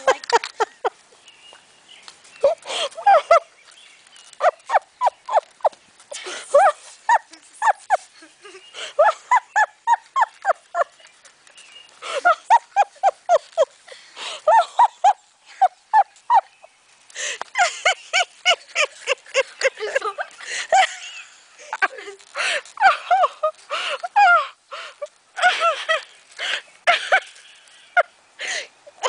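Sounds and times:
puppies yelping and whining: 4.2 - 5.8.

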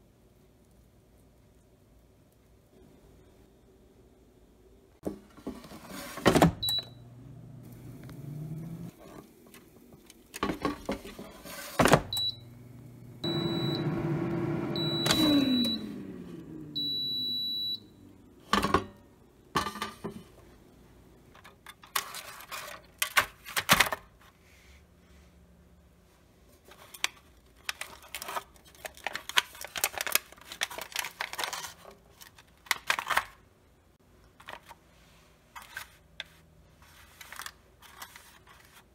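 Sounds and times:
fan whirring: 7.0 - 9.1, 12.2 - 17.0
long beep: 13.2 - 14.0, 14.8 - 15.9, 16.8 - 18.0.

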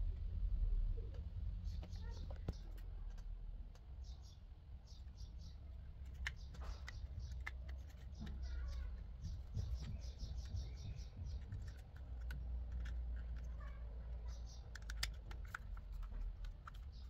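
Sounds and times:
plastic rubbing: 4.9 - 17.0
plastic case clicks: 14.5 - 17.0.

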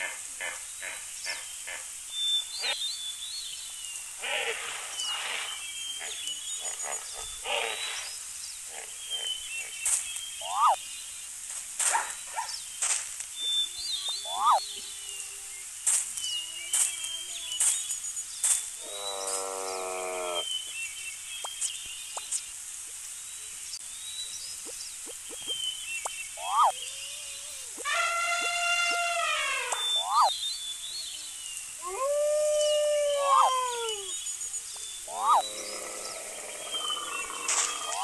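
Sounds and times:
animal calls and grunts: 0.0 - 2.0, 4.2 - 10.8, 13.4 - 15.5, 18.8 - 20.5, 26.3 - 30.4, 34.8 - 38.0
birdsong chirps: 0.0 - 38.0
long wavering call: 27.7 - 30.3.

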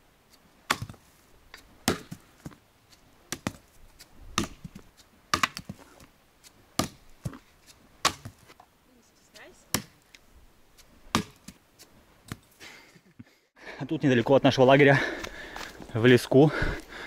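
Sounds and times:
axe striking wood: 0.7 - 1.0, 1.8 - 2.2, 3.3 - 3.6, 4.4 - 5.8, 6.8 - 7.4, 8.0 - 8.4, 9.7 - 10.0, 11.1 - 11.6.

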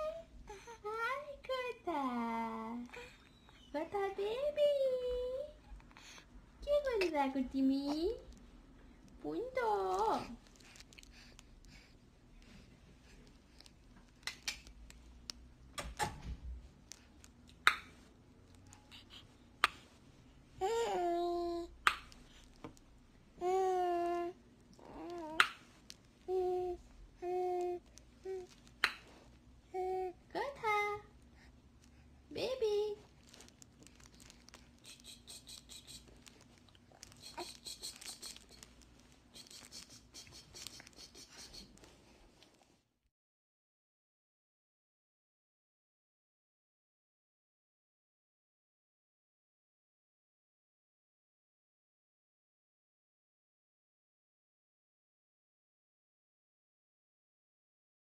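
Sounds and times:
wrapper crinkling: 33.0 - 35.1, 36.0 - 39.8.

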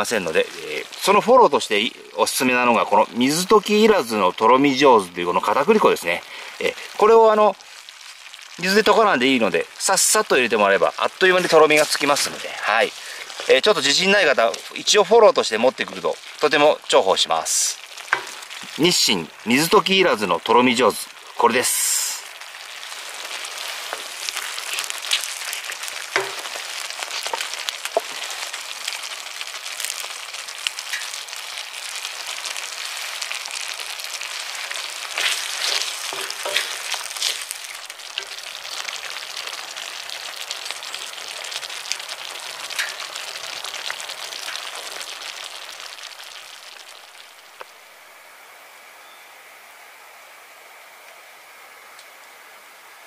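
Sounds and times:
sauce bubbling and sizzling: 0.0 - 48.4
wooden spoon scraping a pan: 11.3 - 14.7, 23.2 - 28.5, 34.6 - 38.4.

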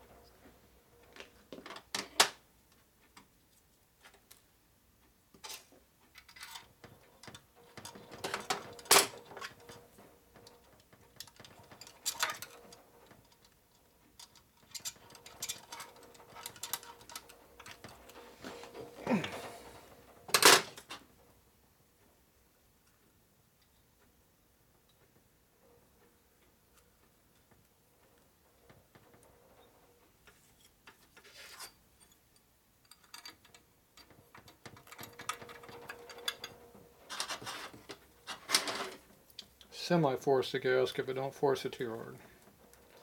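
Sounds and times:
tools clinking against metal: 31.6 - 39.6.

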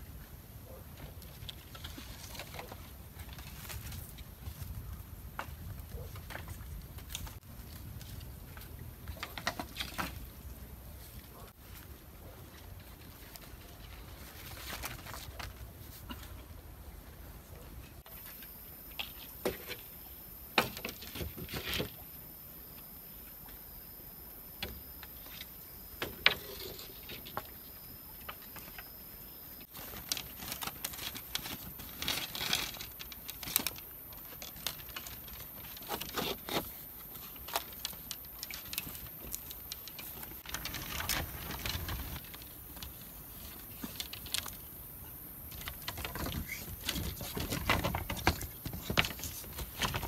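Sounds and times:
bamboo strips rustling and scraping: 0.1 - 22.2, 24.6 - 50.0.

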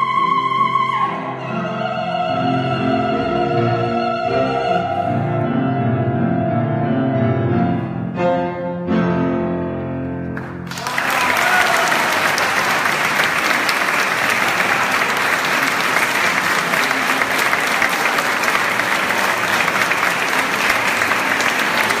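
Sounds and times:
audience applauding: 10.4 - 22.0.

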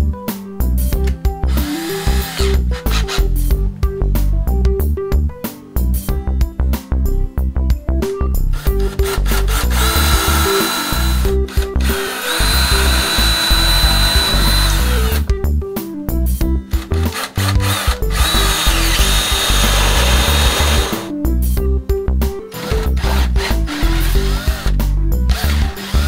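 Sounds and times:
background music with steady beat: 0.0 - 26.0
cordless drill boring into wood: 1.5 - 3.2, 8.6 - 15.2, 17.0 - 21.1, 22.6 - 26.0.

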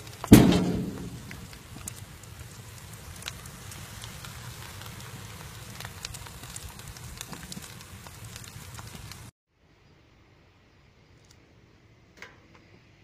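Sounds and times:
food sizzling in roasting pan: 0.0 - 9.3
low rumble: 0.3 - 1.6.

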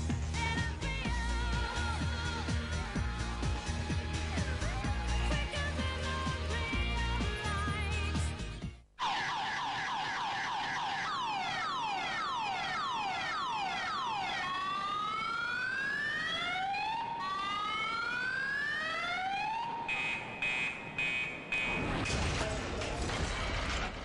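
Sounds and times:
car alarm siren: 9.0 - 22.0
loud crashing noise: 21.7 - 24.0.

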